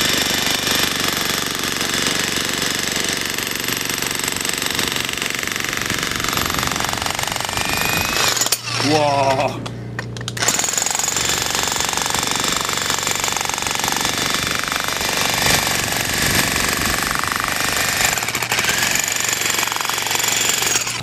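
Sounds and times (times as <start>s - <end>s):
demolition breakers hammering concrete: 10.4s - 21.0s.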